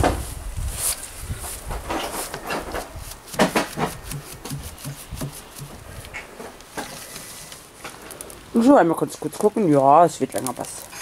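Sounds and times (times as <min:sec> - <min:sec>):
paintbrush scrubbing on wood: 0:02.2 - 0:06.0.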